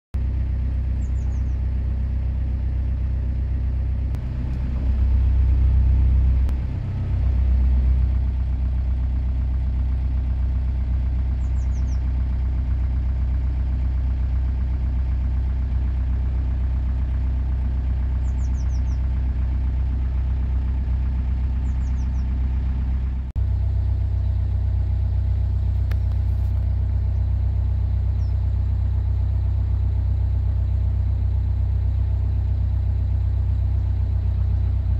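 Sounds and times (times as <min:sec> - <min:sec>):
low engine rumble: 0:00.2 - 0:34.9
faint bird chirps: 0:00.8 - 0:02.0, 0:11.2 - 0:12.5, 0:18.1 - 0:19.6, 0:21.5 - 0:22.5, 0:26.9 - 0:28.8.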